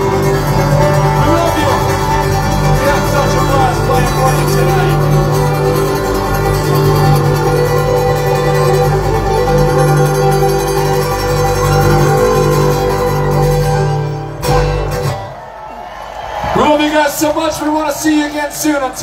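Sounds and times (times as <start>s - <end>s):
live bluegrass band playing: 0.0s - 15.4s.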